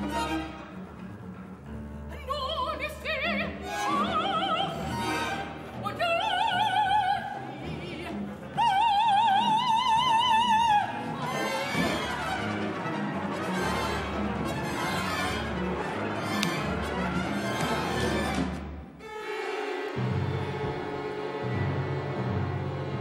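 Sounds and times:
low orchestral notes: 0:00.0 - 0:06.2, 0:10.5 - 0:23.0
soprano singing: 0:02.1 - 0:18.4.

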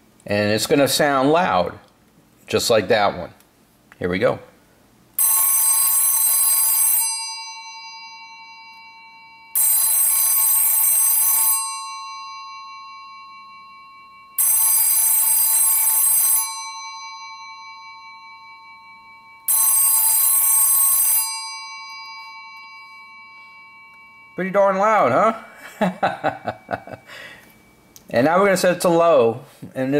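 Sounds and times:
telephone ringer gongs ringing: 0:05.2 - 0:27.9.

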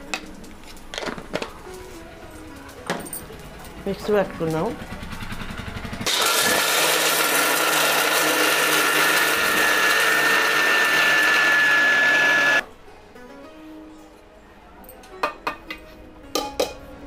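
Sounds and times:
mixer grinder grinding peanuts: 0:06.0 - 0:12.6.

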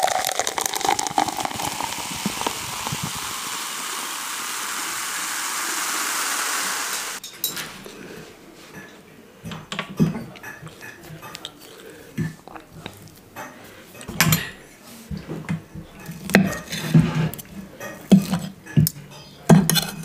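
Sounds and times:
fizzing hiss: 0:00.0 - 0:07.2
liquid pouring and splashing: 0:00.0 - 0:07.2.

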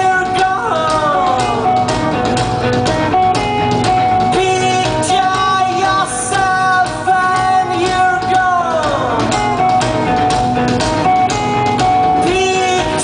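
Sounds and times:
person singing: 0:00.0 - 0:02.4, 0:04.0 - 0:10.2, 0:11.9 - 0:13.0
drums: 0:00.0 - 0:13.0
electric guitars: 0:00.0 - 0:13.0.

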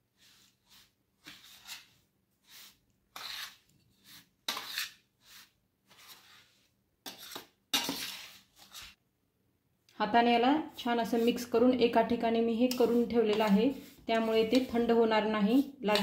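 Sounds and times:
spatula scraping steel plate: 0:00.8 - 0:09.0, 0:12.6 - 0:14.9.

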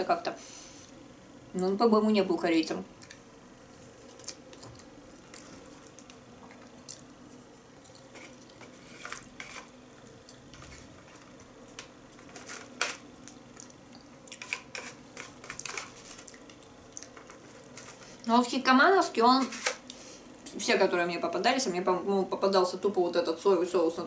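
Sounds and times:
soft wet chewing: 0:03.8 - 0:08.6, 0:13.2 - 0:14.5, 0:16.2 - 0:17.8.

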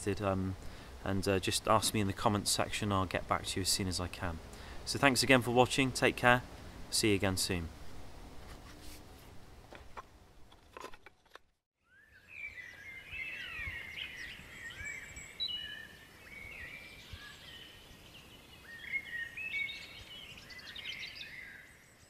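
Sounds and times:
birds chirping and whistling: 0:11.8 - 0:21.9.

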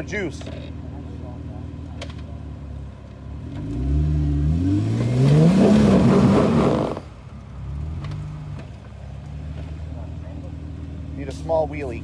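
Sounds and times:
engine revving hard: 0:03.4 - 0:07.1.

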